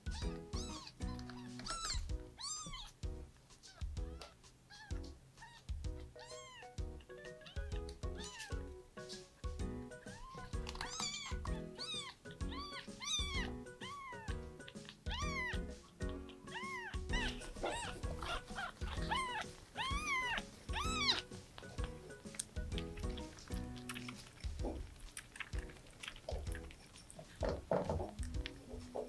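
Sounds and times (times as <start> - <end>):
background music with steady beat: 0.0 - 29.0
kitten mewing: 0.1 - 3.0, 3.7 - 8.6, 10.1 - 22.6.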